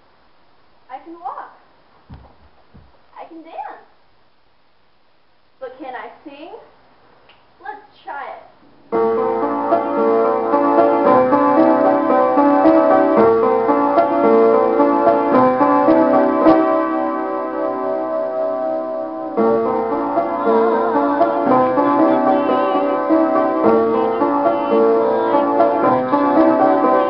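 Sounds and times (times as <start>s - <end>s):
piano chords and melody: 8.7s - 27.0s
woman singing: 20.0s - 27.0s.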